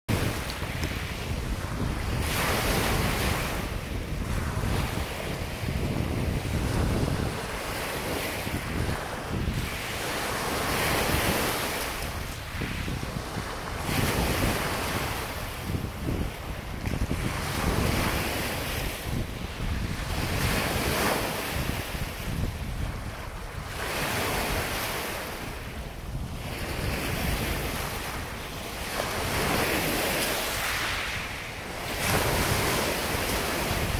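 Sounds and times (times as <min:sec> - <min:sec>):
waves washing up a shore: 0:00.1 - 0:33.9
wind buffeting microphone: 0:00.1 - 0:33.9.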